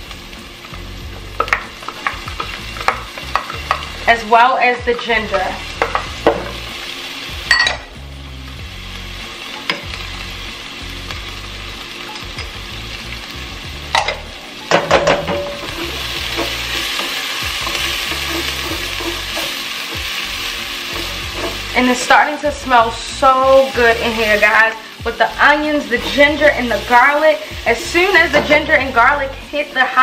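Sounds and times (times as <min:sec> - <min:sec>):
food sizzling in a pot: 0:00.0 - 0:30.0.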